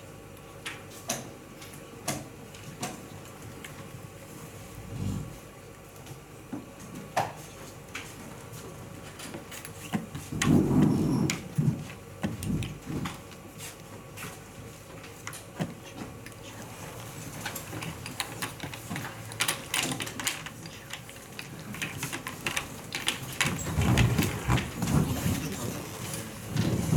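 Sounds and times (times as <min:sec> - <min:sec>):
game pieces clicking on board: 0:17.4 - 0:24.1.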